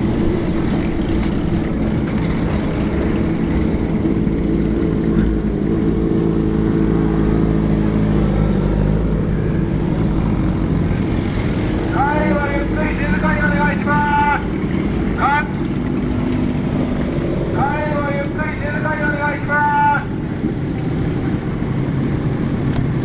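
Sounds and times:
motorcycle engines running: 0.0s - 23.0s.

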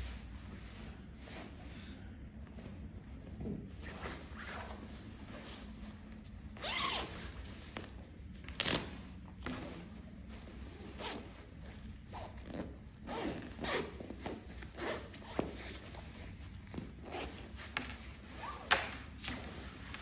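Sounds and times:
zipper being pulled open: 6.6s - 7.1s.

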